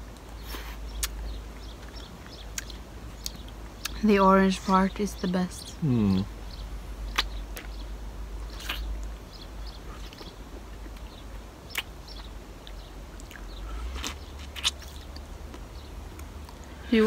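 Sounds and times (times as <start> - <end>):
low steady rumble: 0.0 - 17.0
lip smacks: 0.1 - 4.0, 7.1 - 7.8, 8.5 - 9.1, 9.9 - 16.7
wet sucking and licking: 8.5 - 8.9.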